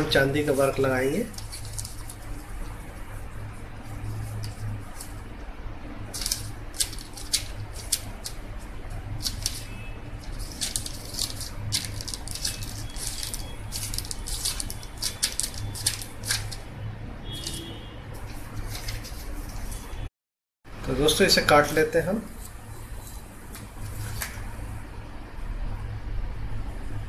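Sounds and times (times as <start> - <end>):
paper sheets rustling and crinkling: 0.1 - 3.1, 6.1 - 16.6, 18.2 - 20.0, 22.4 - 24.5.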